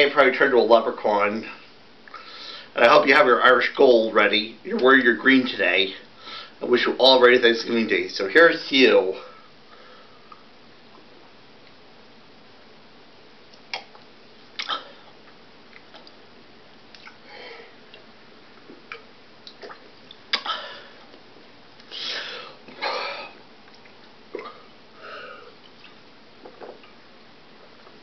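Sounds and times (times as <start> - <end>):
man gulping and swallowing: 13.6 - 16.2, 17.8 - 21.9, 22.6 - 24.8, 25.4 - 28.0.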